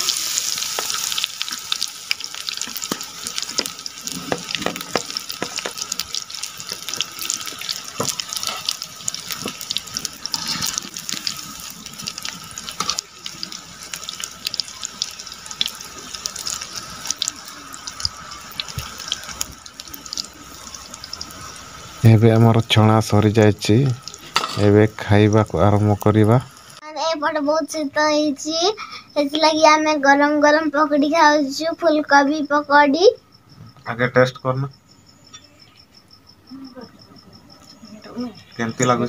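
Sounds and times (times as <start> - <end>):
deep-frying sizzle with crackling pops: 0.0 - 26.9, 37.6 - 39.0.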